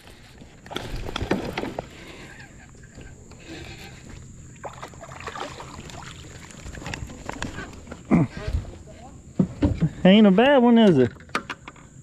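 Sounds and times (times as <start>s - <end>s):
fish splashing: 4.5s - 6.9s.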